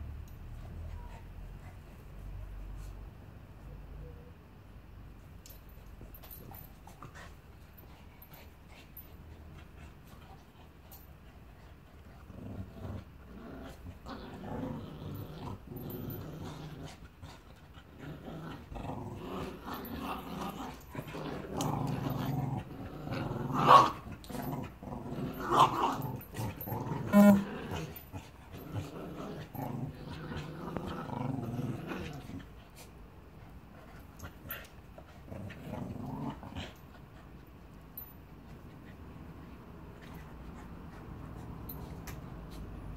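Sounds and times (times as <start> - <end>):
dogs growling: 6.1 - 37.4.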